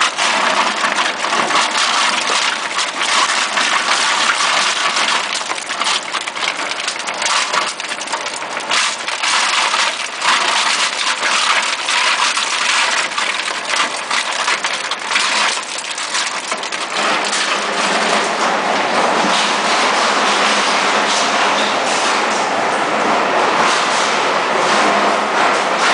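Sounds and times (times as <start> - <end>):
grinder crushing and crackling: 0.0 - 22.3
machine drone: 16.8 - 25.9.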